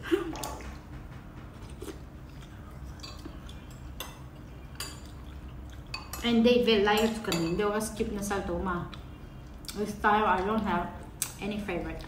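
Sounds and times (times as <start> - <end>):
quiet chewing: 1.5 - 6.0
spoons clinking against bowls: 2.8 - 7.8.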